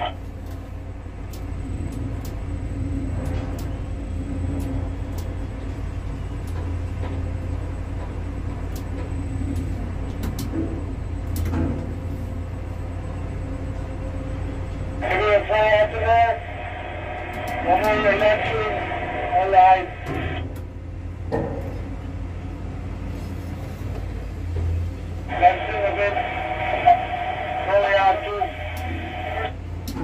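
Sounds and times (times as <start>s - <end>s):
low rumble: 13.0s - 22.9s.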